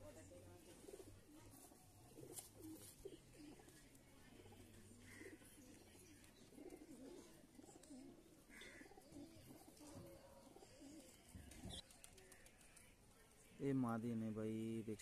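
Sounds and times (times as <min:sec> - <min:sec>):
pigeons cooing: 0:00.8 - 0:11.9.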